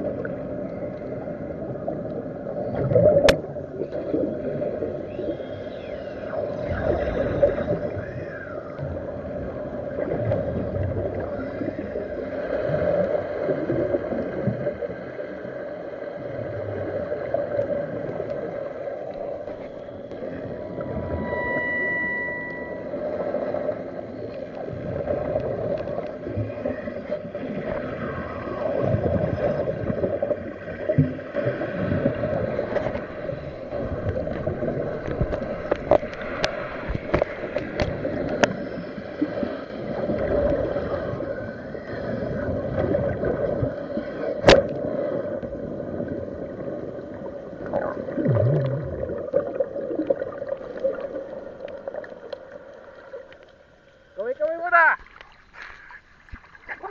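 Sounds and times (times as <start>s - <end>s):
engine drone underwater: 0.0s - 56.9s
water gurgling: 0.0s - 56.9s.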